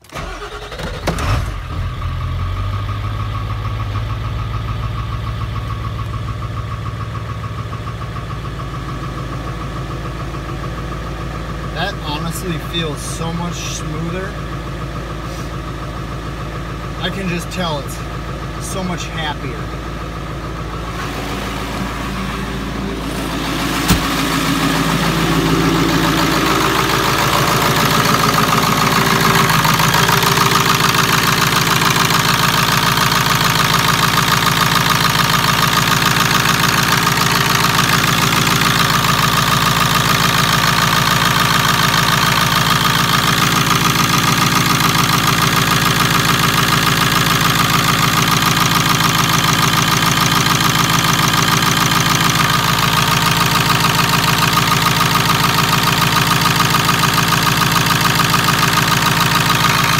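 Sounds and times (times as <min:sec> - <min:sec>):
diesel engine idling: 0:00.0 - 0:59.9
sharp knock: 0:23.8 - 0:24.4.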